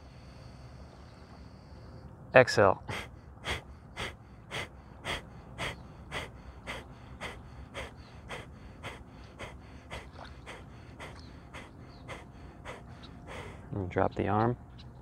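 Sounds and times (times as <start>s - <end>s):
forceful nasal exhalations: 2.9s - 13.7s.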